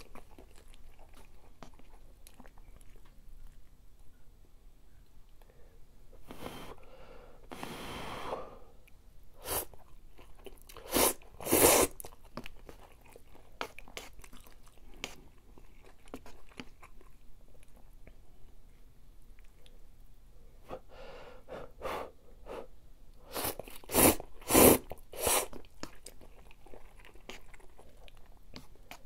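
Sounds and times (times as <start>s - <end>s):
wet chewing: 0.0s - 4.1s, 9.6s - 18.2s, 23.2s - 29.0s
slurping noodles: 10.7s - 12.0s, 23.3s - 26.0s.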